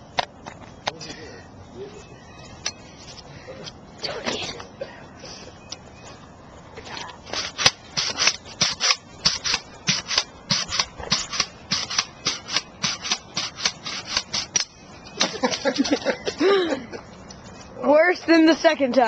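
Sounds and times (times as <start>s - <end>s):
pogo stick spring squeaking: 7.3s - 16.0s.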